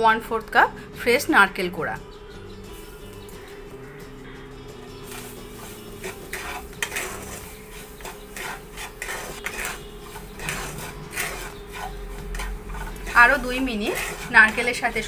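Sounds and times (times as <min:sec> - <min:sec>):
wooden spatula scraping a pan: 0:05.0 - 0:15.0.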